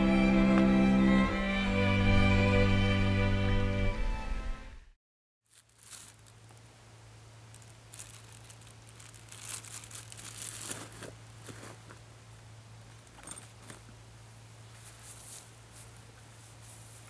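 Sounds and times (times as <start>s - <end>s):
bags crinkling and rustling: 5.5s - 6.7s, 7.4s - 12.1s.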